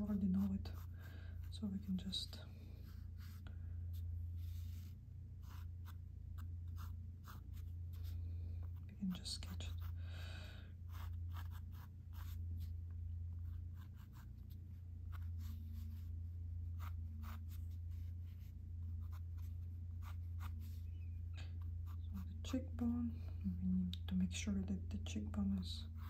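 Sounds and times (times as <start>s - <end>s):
pencil sketching on paper: 0.0s - 10.0s, 10.8s - 12.7s, 13.3s - 16.1s, 21.6s - 22.4s
steady low hum: 0.0s - 26.0s.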